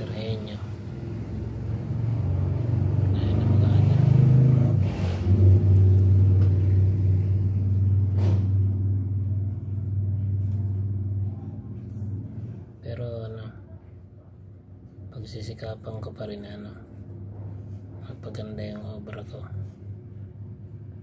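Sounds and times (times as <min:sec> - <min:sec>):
vehicle engine rumbling: 0:00.0 - 0:13.3.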